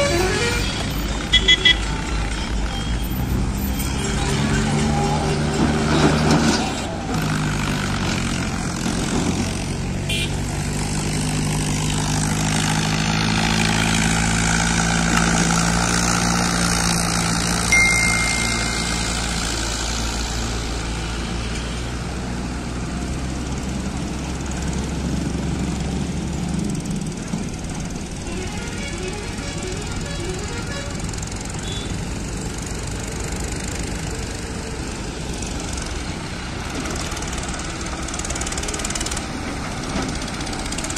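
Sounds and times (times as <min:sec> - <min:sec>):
tractor engines droning: 0:00.0 - 0:40.9
short high tone: 0:17.7 - 0:20.2.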